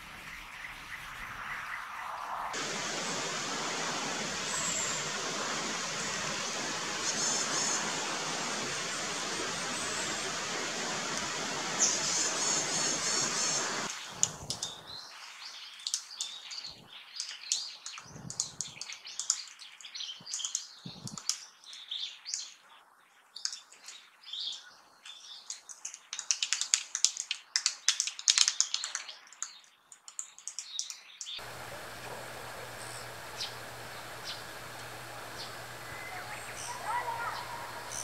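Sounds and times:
woodpecker calling: 2.6 - 13.9, 30.5 - 38.0.

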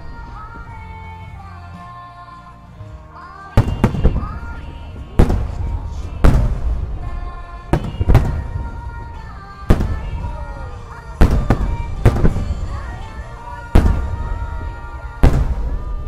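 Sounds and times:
music playing: 0.0 - 16.0
firework shells booming: 3.6 - 16.0.

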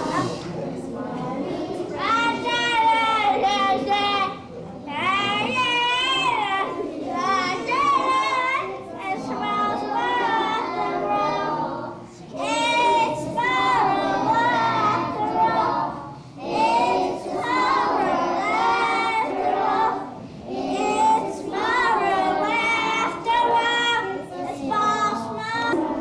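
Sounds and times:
young children singing: 0.0 - 26.0.

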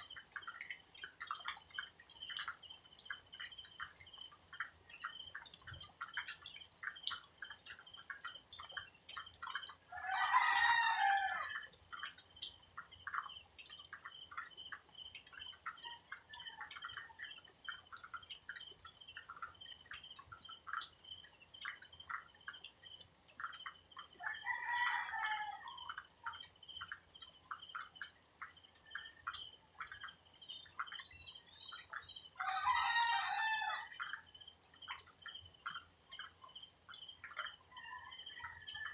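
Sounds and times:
small ticks: 0.0 - 38.9
rooster crowing: 9.9 - 11.6, 24.2 - 25.9, 32.4 - 34.2.

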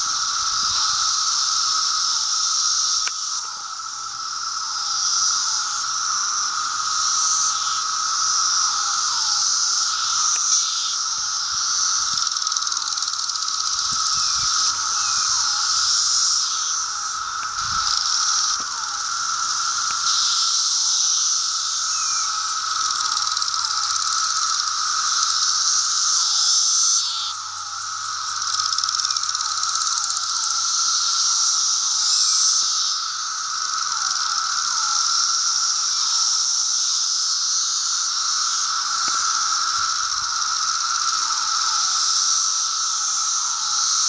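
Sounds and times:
high hissing buzz: 0.0 - 28.5
cicada calls falling in pitch: 0.0 - 44.0
cicadas droning: 0.0 - 44.0.

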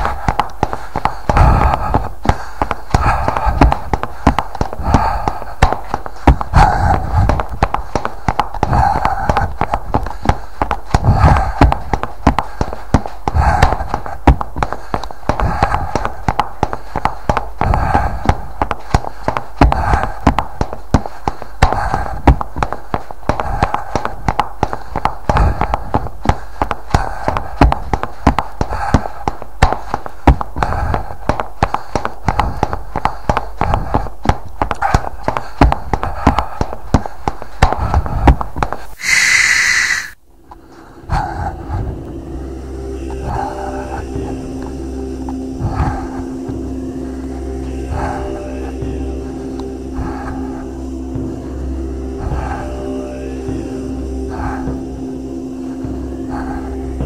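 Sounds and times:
running footfalls: 0.0 - 39.0, 44.2 - 46.7
heavy breathing: 0.0 - 57.0.

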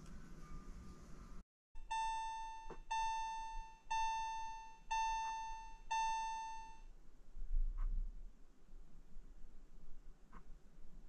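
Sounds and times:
electronic chime dings: 1.8 - 6.8.

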